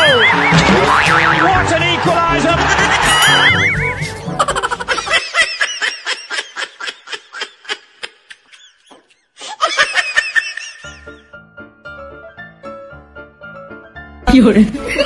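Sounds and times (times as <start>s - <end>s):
person laughing hard: 2.6s - 11.1s.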